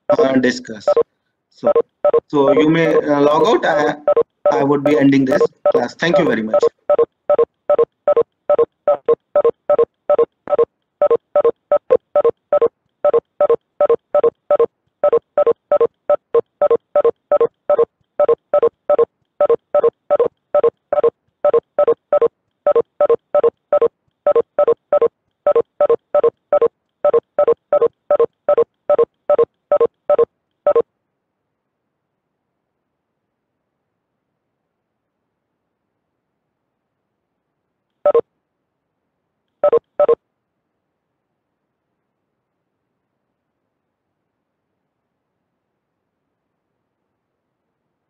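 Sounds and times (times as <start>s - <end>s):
short electronic beeps: 1.6s - 3.0s, 4.0s - 30.8s, 39.6s - 40.2s.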